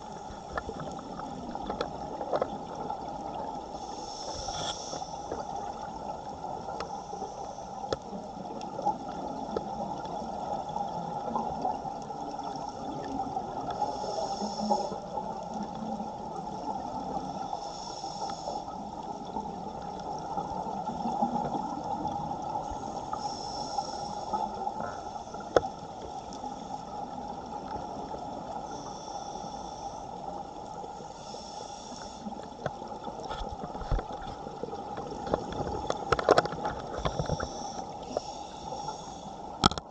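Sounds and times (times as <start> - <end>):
underwater water rushing: 0.0 - 39.9
scuba regulator breathing hiss: 3.7 - 5.6, 6.9 - 7.8, 13.7 - 15.2, 17.2 - 18.8, 22.5 - 26.9, 28.6 - 30.2, 30.9 - 32.5, 37.2 - 39.4.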